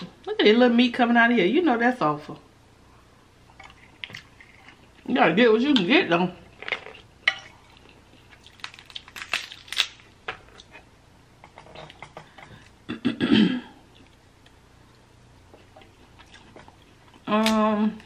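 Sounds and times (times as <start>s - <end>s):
crab shells cracking: 7.8s - 10.7s.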